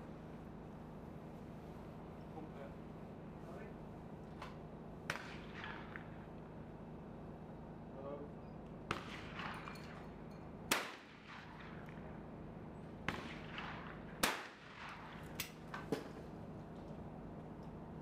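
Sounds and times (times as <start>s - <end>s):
faint sharp cracks: 4.4s - 6.3s
shotgun shots: 5.1s - 6.2s, 8.9s - 10.1s, 10.7s - 12.1s, 13.0s - 16.1s.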